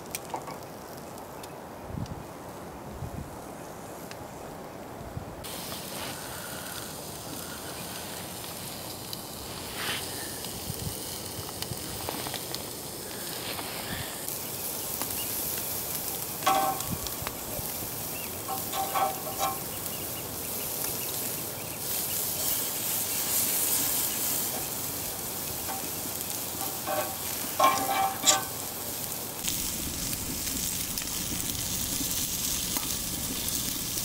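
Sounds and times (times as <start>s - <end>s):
meat sizzling on a grill: 5.4s - 34.0s
tongs clinking on grill grate: 15.0s - 29.6s.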